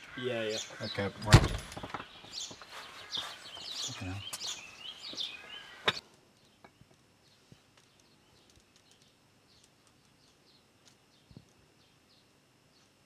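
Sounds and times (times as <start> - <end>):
faint birdsong: 0.0 - 13.0
front door shutting: 0.8 - 2.1.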